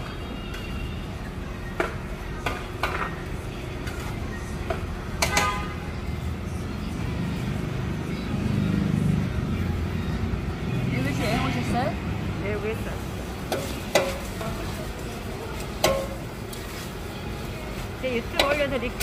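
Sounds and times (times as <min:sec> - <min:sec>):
pots and utensils clinking: 0:13.4 - 0:14.7, 0:15.6 - 0:16.9, 0:18.2 - 0:19.0.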